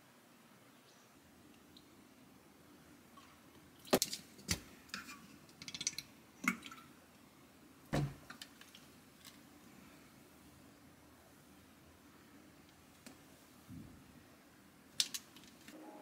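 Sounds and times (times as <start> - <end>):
dull thud: 7.9 - 8.2
plastic caps clicking and twisting: 15.0 - 15.7.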